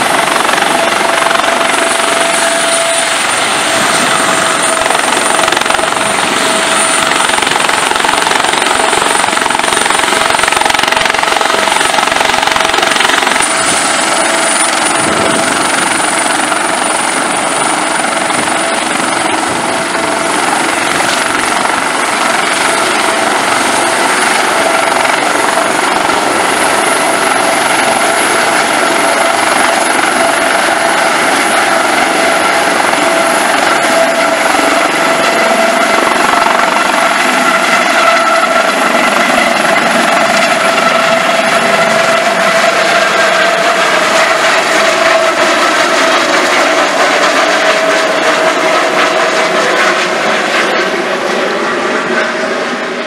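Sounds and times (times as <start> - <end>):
helicopter rotor turning: 0.0 - 53.0
high turbine whine: 0.0 - 53.0.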